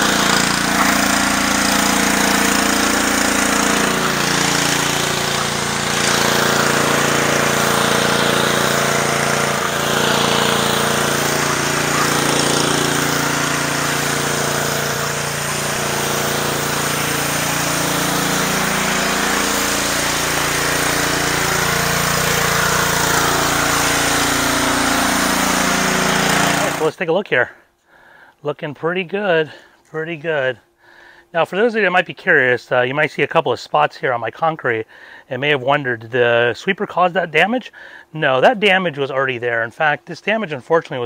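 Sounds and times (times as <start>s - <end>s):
pressure washer engine running: 0.0s - 26.9s
water jets hissing on concrete: 0.0s - 26.9s.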